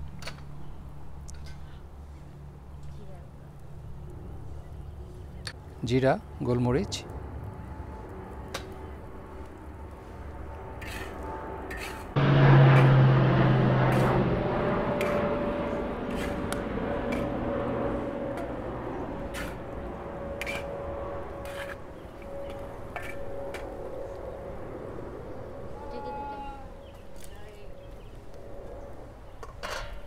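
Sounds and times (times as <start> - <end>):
loud sizzling rush: 9.0 - 26.8
metal spatula scraping a wok: 10.8 - 12.1.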